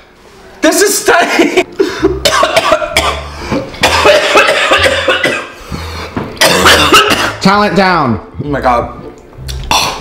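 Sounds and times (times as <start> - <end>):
man coughing: 2.0 - 5.6, 6.4 - 7.4.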